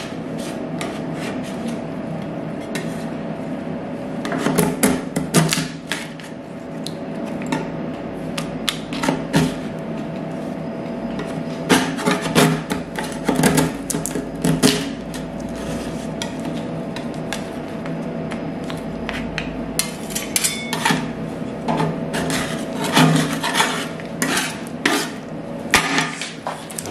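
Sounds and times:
steady machine hum: 0:00.0 - 0:26.9
metal spatulas scraping steel plate: 0:22.1 - 0:25.2.

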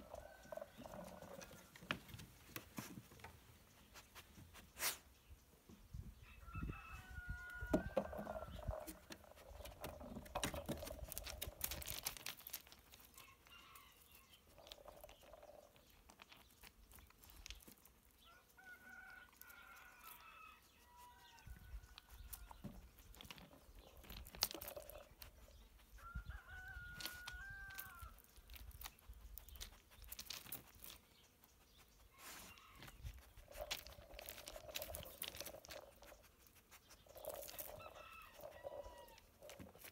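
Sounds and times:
faint rooster crowing: 0:06.2 - 0:08.8, 0:13.2 - 0:14.3, 0:18.3 - 0:22.4, 0:26.0 - 0:28.2, 0:32.1 - 0:33.1, 0:37.3 - 0:39.6
gravel stones clattering: 0:08.3 - 0:13.1, 0:22.4 - 0:25.2, 0:27.0 - 0:31.0, 0:33.5 - 0:36.2.

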